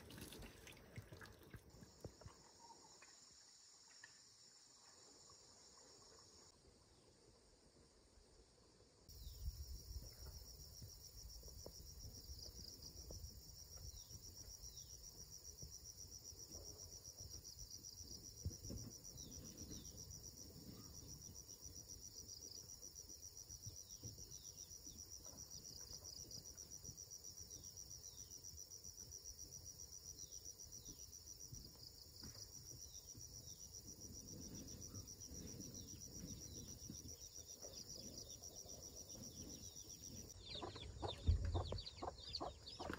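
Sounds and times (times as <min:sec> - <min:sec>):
insect chorus trilling: 0:30.1 - 0:42.9.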